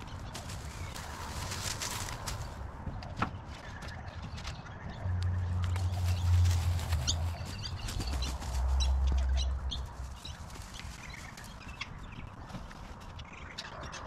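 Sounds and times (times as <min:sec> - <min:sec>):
branches rustling and crackling: 0:00.0 - 0:03.7, 0:05.2 - 0:13.6.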